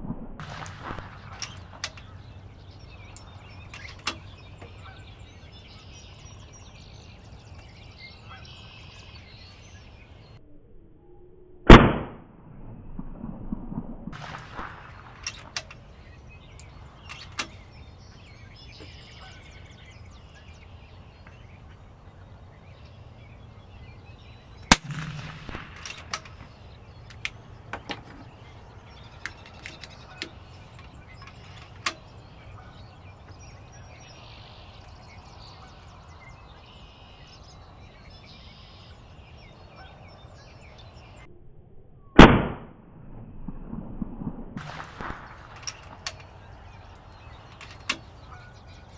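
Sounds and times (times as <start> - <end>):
small clicks: 0.4 - 2.2, 3.1 - 4.8, 14.2 - 17.8, 24.7 - 32.6, 44.6 - 48.4
air rifle shots: 0.4 - 4.4, 11.7 - 12.3, 14.1 - 17.8, 24.6 - 32.8, 42.2 - 42.8, 44.6 - 48.5.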